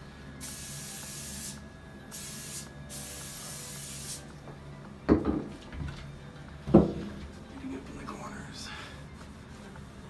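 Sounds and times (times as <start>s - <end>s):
spray bottle squirting: 0.4s - 4.2s.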